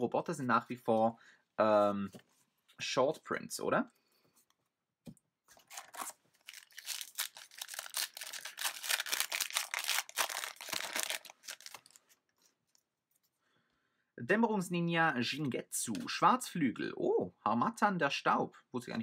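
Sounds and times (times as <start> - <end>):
foil wrapper tearing and crinkling: 5.6 - 12.2.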